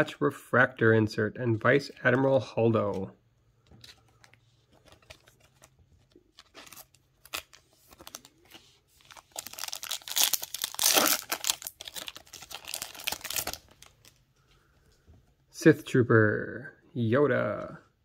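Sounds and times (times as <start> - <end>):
foil wrapper tearing and crinkling: 6.4 - 8.3, 9.1 - 14.2.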